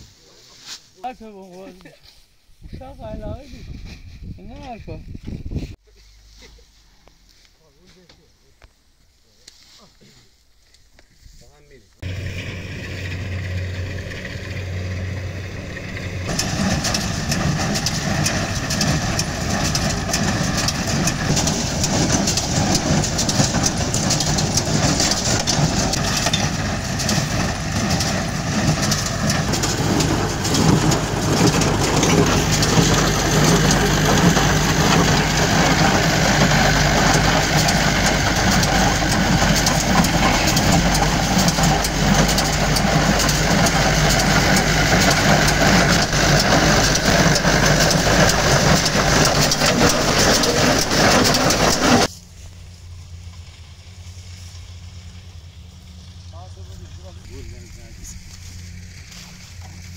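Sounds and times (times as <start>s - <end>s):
tractor engine running: 12.0s - 59.9s.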